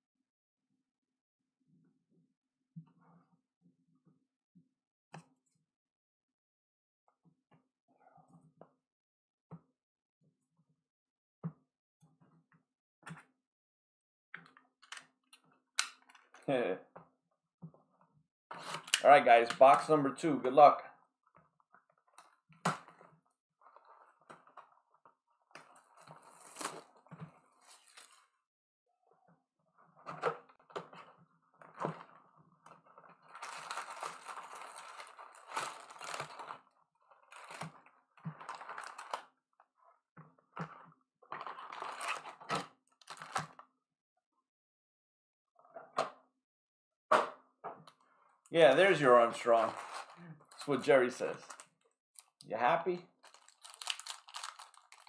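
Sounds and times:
wrapper crinkling: 0:32.9 - 0:37.8, 0:38.4 - 0:39.2, 0:41.4 - 0:43.4, 0:48.9 - 0:52.3, 0:53.2 - 0:55.0.

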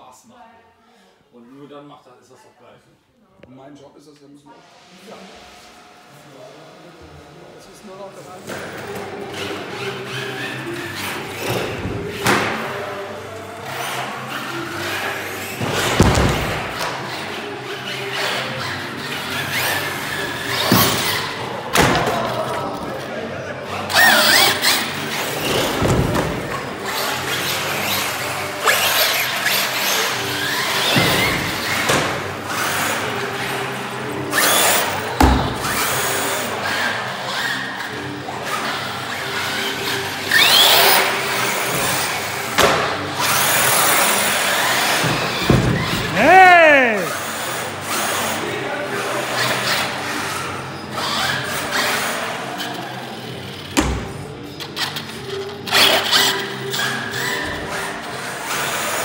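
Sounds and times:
rc truck driving on concrete: 0:08.2 - 0:46.2, 0:47.1 - 0:53.8, 0:54.4 - 0:59.0
electric toy car motors whining: 0:08.8 - 0:16.0, 0:16.6 - 0:21.7, 0:23.6 - 0:46.2, 0:47.1 - 0:53.8
echoing hall noise: 0:39.6 - 0:53.1.

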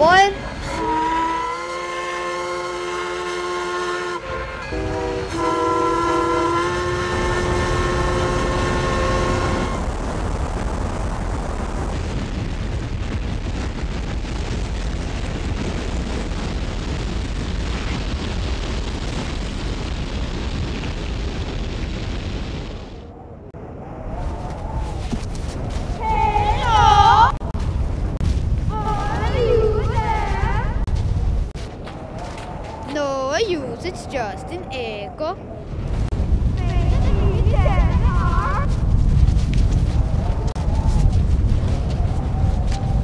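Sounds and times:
loud steady rumble: 0:00.0 - 0:21.5
locomotive horn chord: 0:00.4 - 0:10.0.

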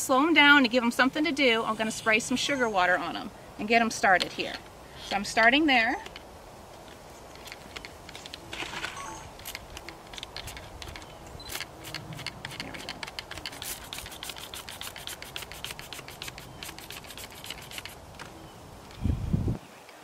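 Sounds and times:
spray bottle squirting: 0:11.5 - 0:18.0.

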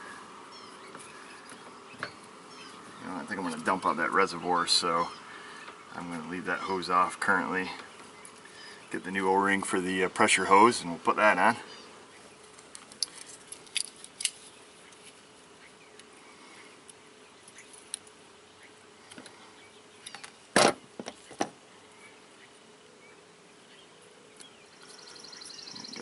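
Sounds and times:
faint steady hum: 0:00.0 - 0:26.0
small metal parts clicking: 0:12.8 - 0:14.5.

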